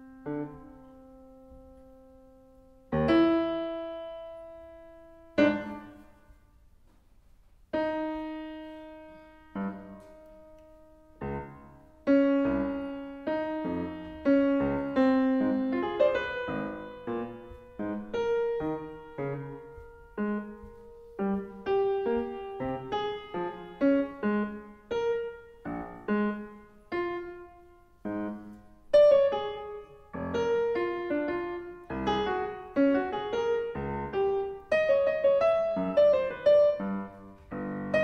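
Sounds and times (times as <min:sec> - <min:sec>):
solo piano playing: 0:00.0 - 0:06.6, 0:07.7 - 0:38.0.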